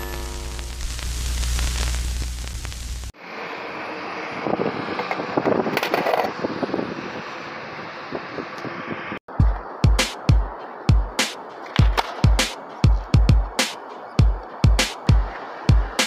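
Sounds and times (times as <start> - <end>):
low electric hum: 0.0 - 3.1
static hiss: 0.0 - 3.2
skateboard clacks and scrapes: 4.9 - 6.4, 11.6 - 13.1.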